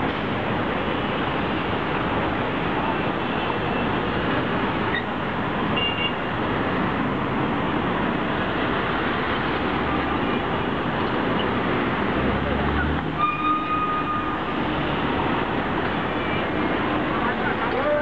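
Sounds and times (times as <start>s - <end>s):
dense city traffic: 0.0s - 18.0s.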